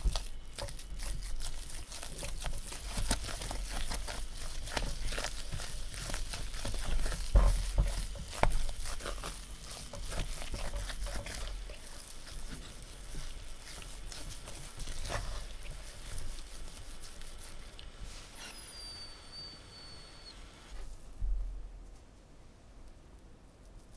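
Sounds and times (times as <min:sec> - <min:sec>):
spatula scraping paste in a pan: 0:00.0 - 0:19.2.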